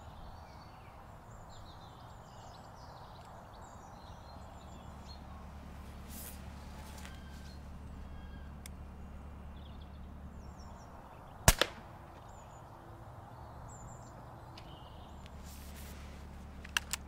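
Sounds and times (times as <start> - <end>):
faint bird chirps: 0.0 - 11.4, 12.1 - 15.7
air rifle shot crack: 11.4 - 12.3.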